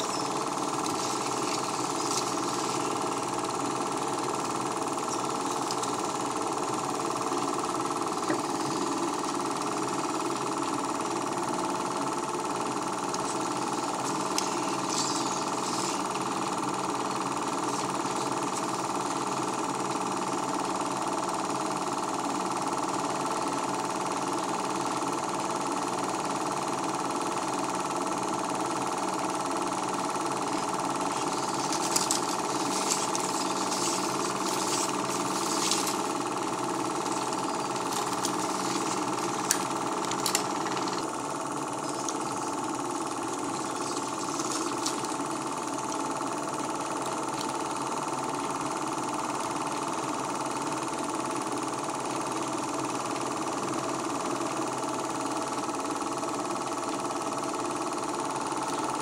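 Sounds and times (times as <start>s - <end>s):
sharp clicks and crackles: 0.0s - 3.5s, 30.3s - 41.2s, 43.3s - 46.1s
film projector clatter and whir: 0.0s - 59.0s.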